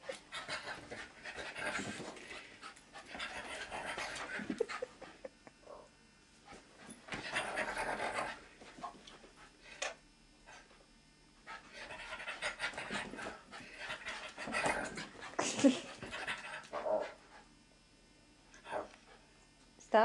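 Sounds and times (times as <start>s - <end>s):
dog panting: 11.5s - 17.2s.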